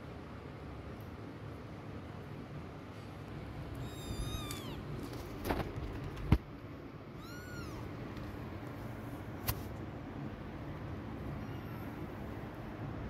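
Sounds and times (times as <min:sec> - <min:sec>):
kitten meowing: 0:03.7 - 0:04.9, 0:07.2 - 0:08.0, 0:11.4 - 0:12.1.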